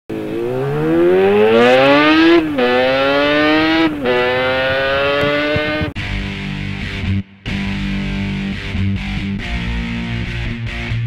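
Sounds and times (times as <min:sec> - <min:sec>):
motorcycle engine accelerating: 0:00.1 - 0:06.2.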